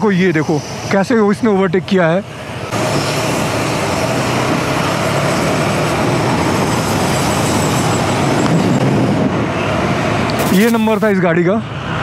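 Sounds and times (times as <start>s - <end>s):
road traffic: 0.0s - 12.0s
wind rush: 2.4s - 11.2s.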